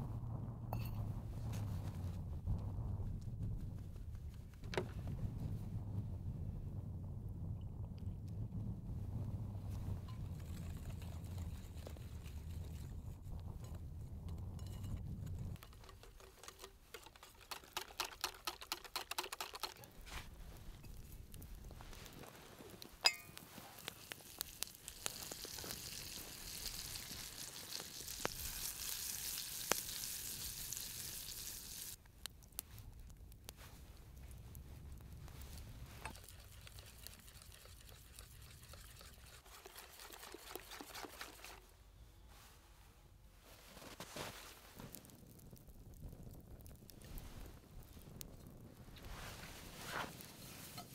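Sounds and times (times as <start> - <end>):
low rumble: 0.0 - 15.6
whisk clicking against glass bowl: 15.6 - 19.8
butter sizzling in saucepan: 22.8 - 32.0, 36.0 - 41.6.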